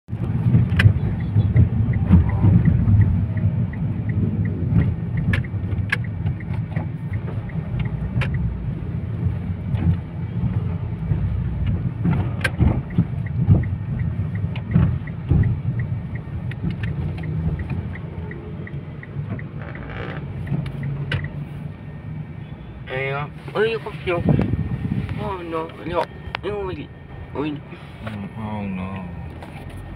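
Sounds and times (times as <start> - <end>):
sharp clicks and knocks: 0.1 - 8.5, 9.1 - 21.4
car engine and road rumble: 0.1 - 29.9
faint regular ticking: 0.7 - 10.2, 10.9 - 21.5.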